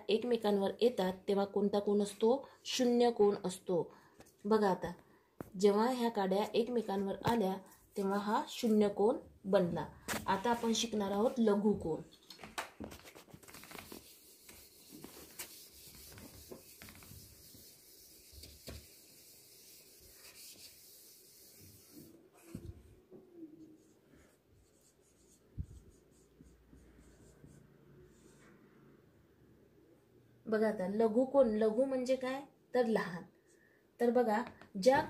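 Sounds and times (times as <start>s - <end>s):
duster wiping whiteboard: 10.2s - 11.5s, 12.9s - 22.8s, 23.6s - 28.6s
marker scratching on whiteboard: 10.3s - 11.4s, 13.0s - 22.7s, 23.6s - 28.5s.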